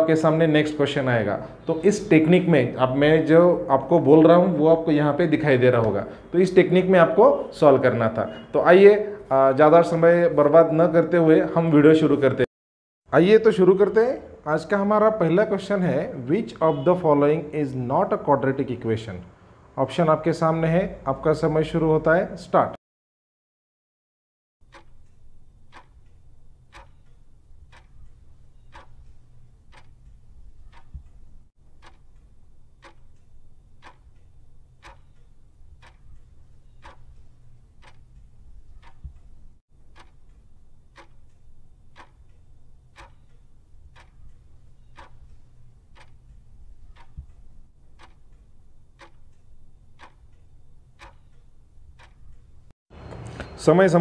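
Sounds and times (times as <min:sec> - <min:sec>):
clock ticking: 0:00.1 - 0:10.4, 0:15.6 - 0:17.1, 0:24.6 - 0:52.7.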